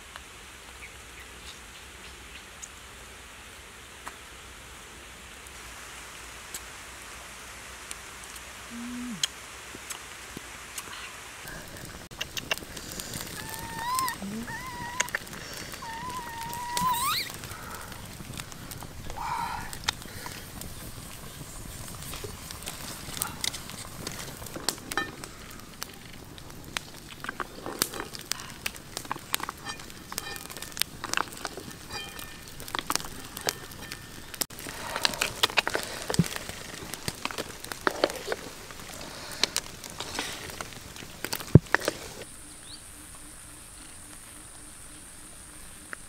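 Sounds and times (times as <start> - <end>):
wood fire crackling: 5.2 - 46.0
fire pops and snaps: 9.2 - 42.3.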